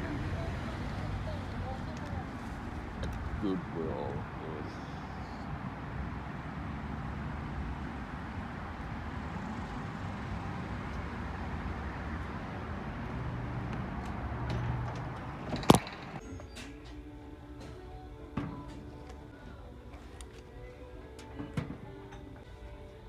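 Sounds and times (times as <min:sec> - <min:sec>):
faint background music: 0:00.0 - 0:05.6, 0:15.7 - 0:23.0
low vehicle hum: 0:00.0 - 0:16.2
road traffic noise: 0:00.0 - 0:23.0.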